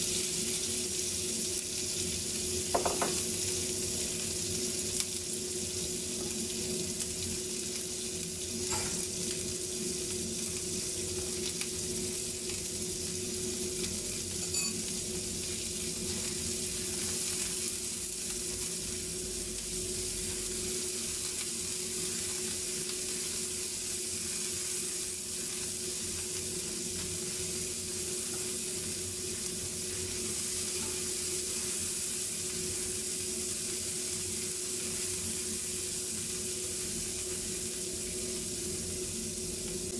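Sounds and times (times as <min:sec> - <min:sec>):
food deep-frying in bubbling oil: 0:00.0 - 0:39.9
meat sizzling in a pan: 0:00.0 - 0:39.9
utensil stirring in a pan: 0:14.0 - 0:19.0, 0:19.9 - 0:38.3.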